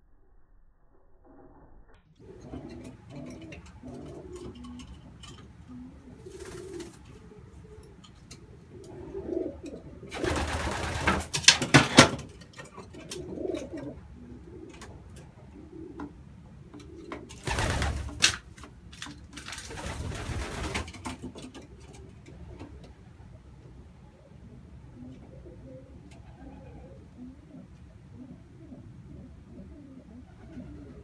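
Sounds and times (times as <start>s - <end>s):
pigeons cooing: 2.2s - 18.1s, 19.8s - 31.0s
rustling clattering bursts: 17.3s - 21.7s.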